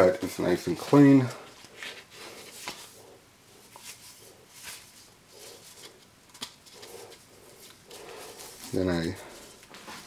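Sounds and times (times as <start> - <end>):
paper rustling: 0.2 - 10.0.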